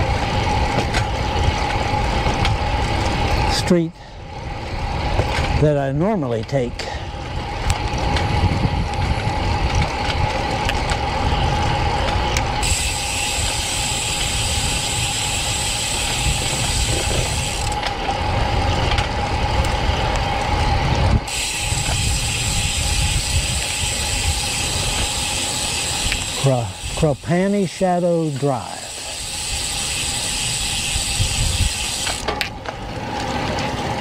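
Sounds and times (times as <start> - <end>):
bicycle freehub ratcheting: 0.0 - 34.0
bicycle tyre noise on concrete: 0.0 - 34.0
wind on microphone: 7.1 - 13.8, 14.4 - 25.2, 30.5 - 31.9.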